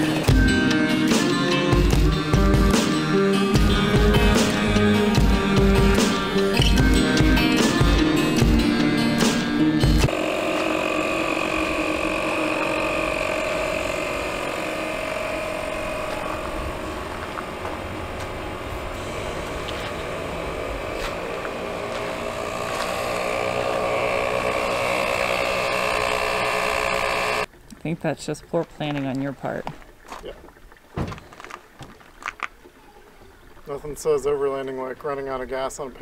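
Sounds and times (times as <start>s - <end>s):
air compressor running: 0.0s - 27.5s.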